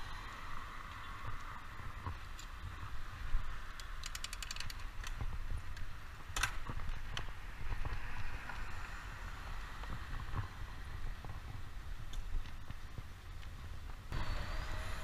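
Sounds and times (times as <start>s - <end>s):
road rumble: 0.0s - 15.0s
bike clicks: 0.9s - 8.8s, 9.8s - 14.0s
wind on microphone: 5.0s - 15.0s.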